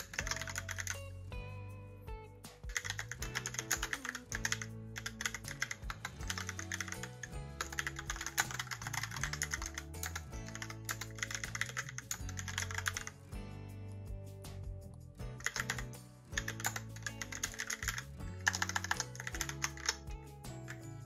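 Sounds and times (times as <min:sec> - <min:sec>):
mechanical keyboard typing: 0:00.0 - 0:01.0, 0:02.7 - 0:13.1, 0:15.4 - 0:20.0
soft background music: 0:00.0 - 0:21.0.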